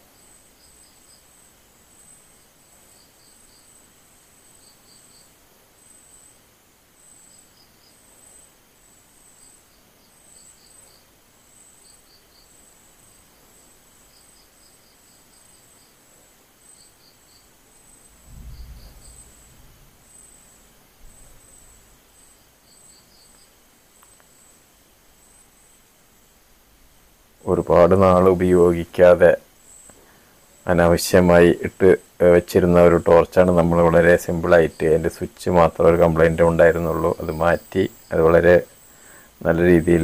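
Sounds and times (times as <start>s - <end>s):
crickets chirping: 0.0s - 40.0s
insect calling in pulses: 16.6s - 24.6s
low thump: 18.2s - 19.8s.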